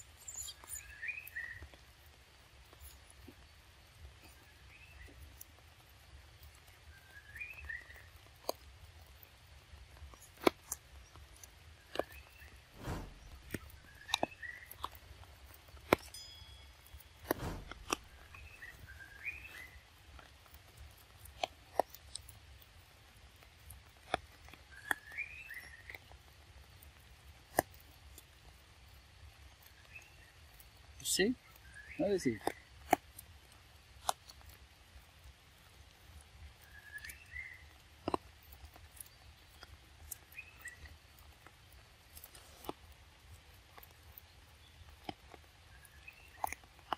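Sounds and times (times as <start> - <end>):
faint high chirping calls: 0.0 - 1.8
monkey chewing fruit rind: 4.0 - 16.2, 17.2 - 46.9.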